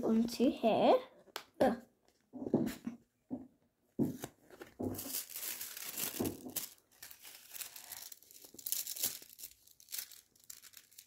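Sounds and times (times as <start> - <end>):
foil sheet crinkling and rustling: 4.8 - 11.0.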